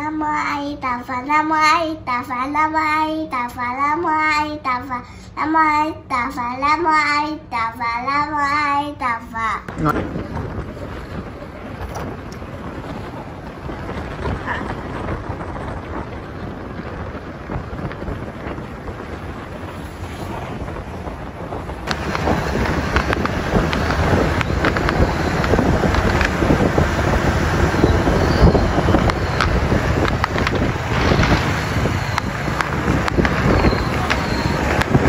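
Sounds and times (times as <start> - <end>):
street traffic: 0.0 - 35.0
wind rushing over microphone: 0.0 - 35.0
sharp pops: 28.9 - 35.0.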